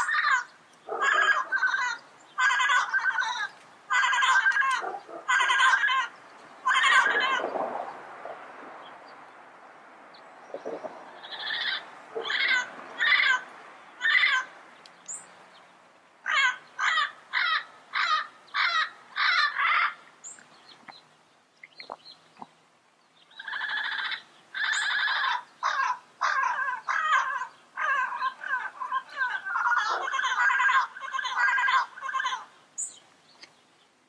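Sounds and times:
parrot squawking: 0.0s - 7.5s, 11.2s - 14.5s, 16.3s - 20.0s, 23.3s - 32.5s.

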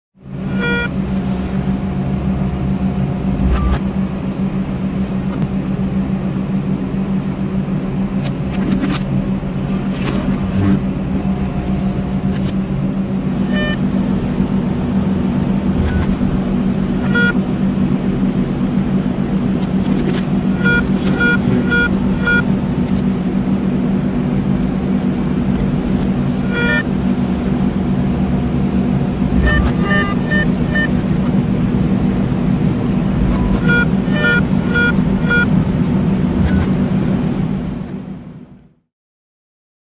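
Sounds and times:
low electronic hum: 0.2s - 38.8s
quick high beeps: 20.6s - 22.4s, 26.4s - 26.8s, 29.4s - 31.0s, 33.3s - 35.5s.

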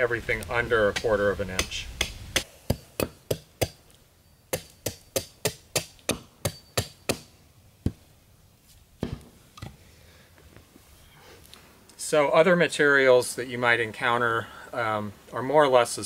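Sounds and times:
hatchet chopping bark on wood: 0.9s - 3.8s, 4.5s - 7.3s.

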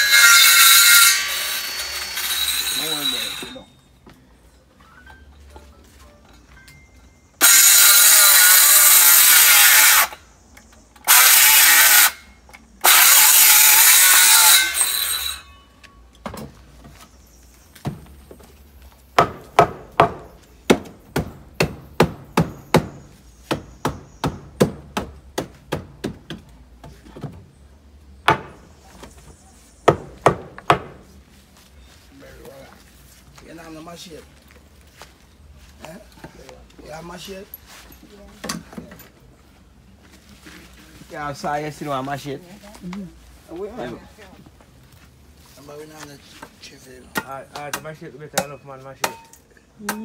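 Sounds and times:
power saw cutting wood: 0.0s - 3.6s, 7.4s - 10.2s, 11.0s - 12.2s, 12.8s - 15.5s.

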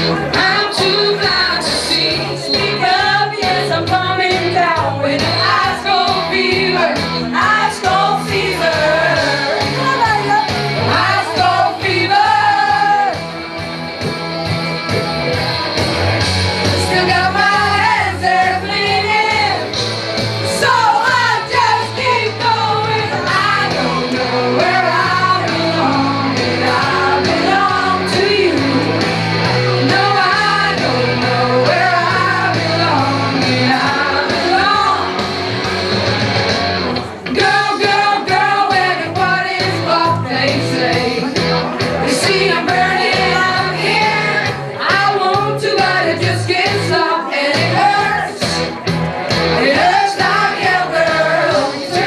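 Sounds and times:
people singing into a microphone: 0.0s - 13.2s, 16.7s - 35.3s, 37.1s - 52.0s
loud rock party music: 0.0s - 52.0s.

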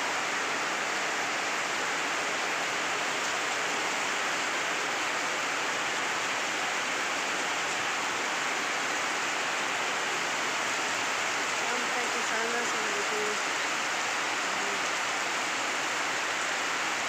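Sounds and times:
heavy rain on concrete: 0.0s - 17.0s.

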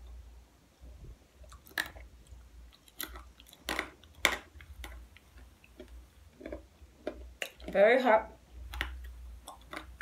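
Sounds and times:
person chewing crunchy food: 1.4s - 7.8s, 8.6s - 10.0s.

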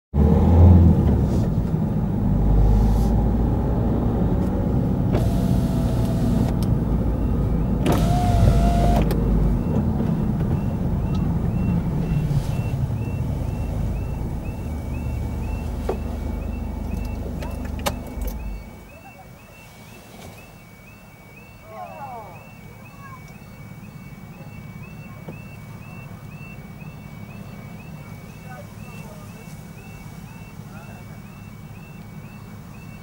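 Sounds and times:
car engine and road noise: 0.1s - 33.0s
power window motor whirring: 5.0s - 6.6s, 7.8s - 12.7s
level crossing warning alarm: 20.7s - 33.0s.

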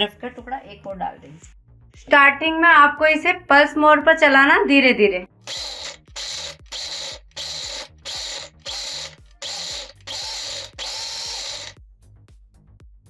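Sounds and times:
mixer grinder pulsing: 5.5s - 11.8s.

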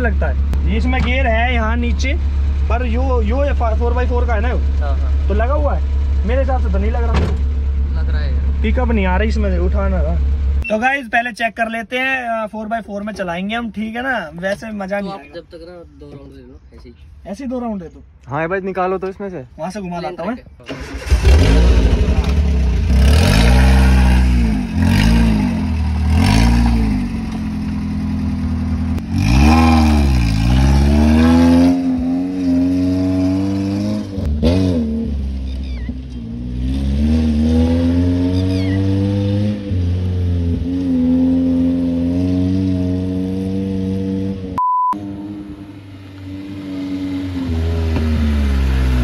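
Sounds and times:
off-road vehicle engine revving: 20.7s - 49.0s.

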